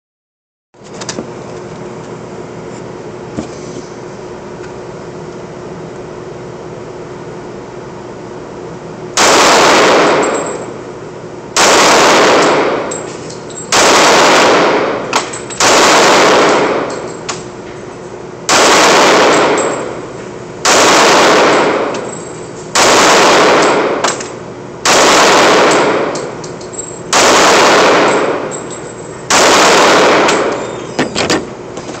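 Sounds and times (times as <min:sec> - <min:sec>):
steady background hum: 0:00.8 - 0:32.0
pistol shots echoing indoors: 0:09.2 - 0:10.8, 0:11.6 - 0:13.1, 0:13.7 - 0:17.2, 0:18.5 - 0:26.4, 0:27.1 - 0:30.7.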